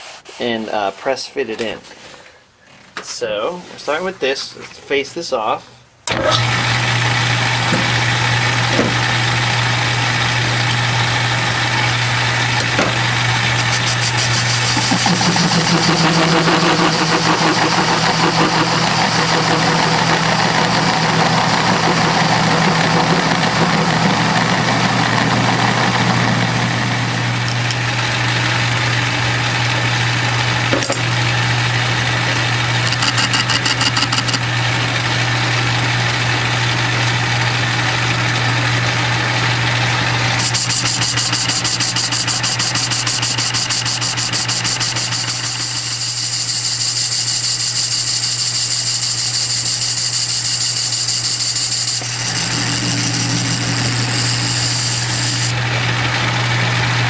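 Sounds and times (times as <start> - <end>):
lathe motor hum: 6.1 - 57.0
lathe tool cutting metal: 6.1 - 57.0.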